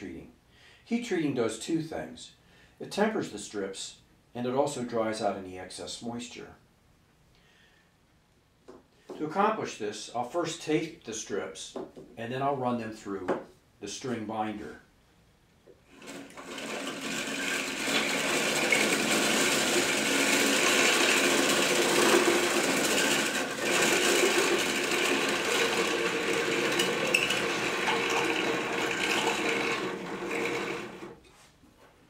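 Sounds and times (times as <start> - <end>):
string binder whirring: 15.9 - 31.3.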